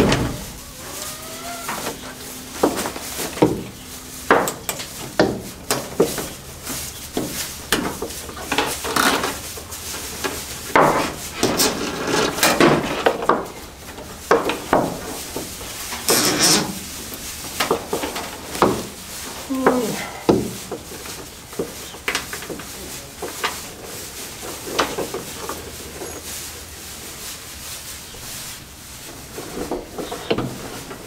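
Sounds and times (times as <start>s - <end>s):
wood and tools knocking: 1.7s - 6.4s, 10.7s - 16.8s, 17.6s - 18.9s, 19.7s - 22.7s.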